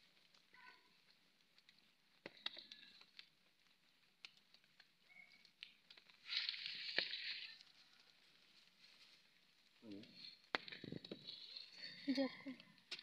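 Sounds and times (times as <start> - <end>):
falling soil clicks: 0.0 - 13.0
dry earth crumbling and scraping: 5.1 - 13.0.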